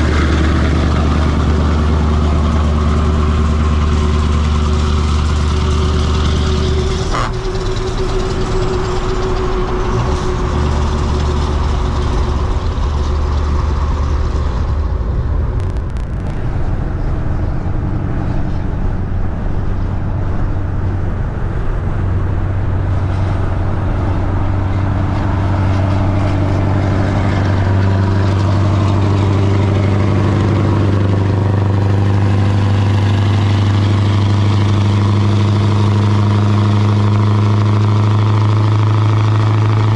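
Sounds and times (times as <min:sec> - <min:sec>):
diesel truck engines droning: 0:00.0 - 0:39.9.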